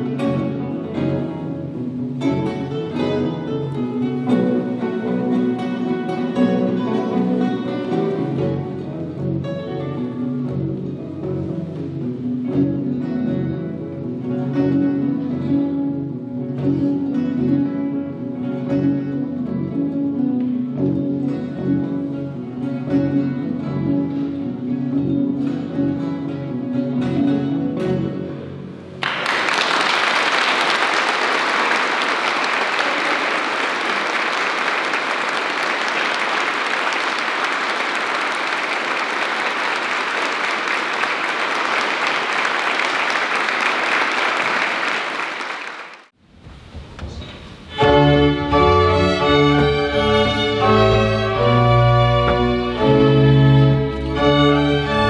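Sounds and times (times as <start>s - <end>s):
acoustic guitars playing: 0.0s - 29.2s, 47.5s - 55.0s
audience applause: 29.0s - 46.1s.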